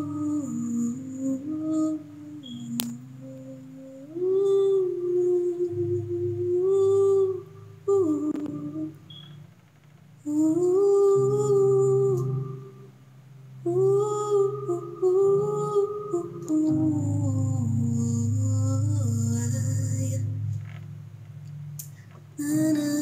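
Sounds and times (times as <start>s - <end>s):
woman singing wordless notes: 0.0s - 9.4s, 10.2s - 20.6s, 21.8s - 23.0s
low sustained musical backing: 0.0s - 23.0s.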